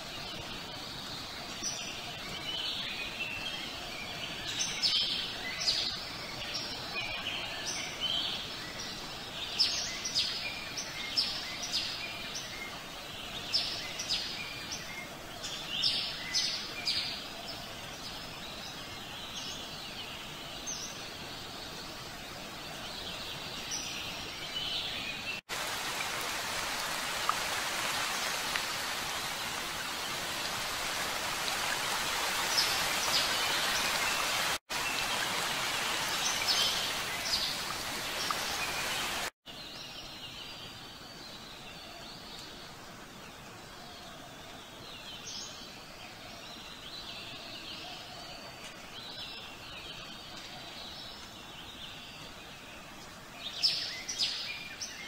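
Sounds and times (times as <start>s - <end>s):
background hiss: 0.0s - 55.0s
songbirds chirping: 0.0s - 55.0s
steady rain: 25.4s - 39.4s.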